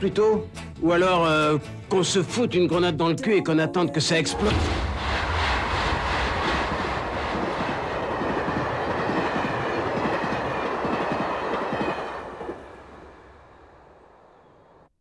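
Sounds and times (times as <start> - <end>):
train wheels clattering on rails: 5.0 - 12.8.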